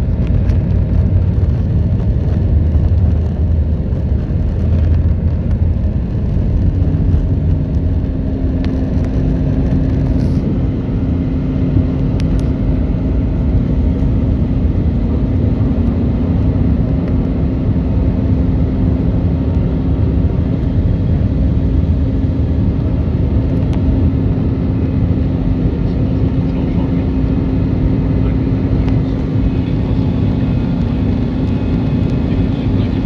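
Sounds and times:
jet engine drone: 0:00.0 - 0:33.0
rushing airflow: 0:00.0 - 0:33.0
steady low hum: 0:00.0 - 0:33.0.

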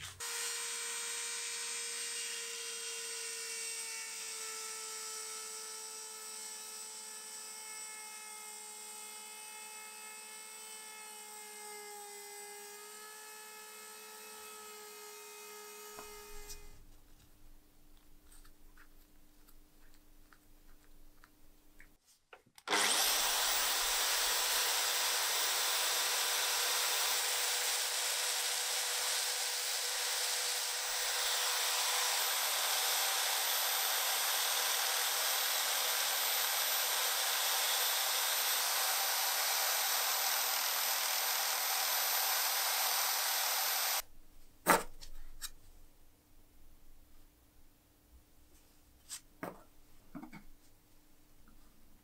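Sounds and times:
drill press motor whine: 0:22.7 - 0:44.0.

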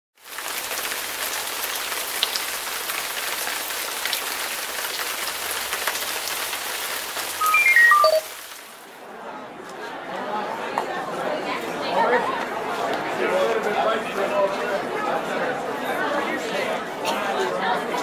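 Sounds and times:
steady rain hissing: 0:00.2 - 0:07.4, 0:08.2 - 0:09.0.

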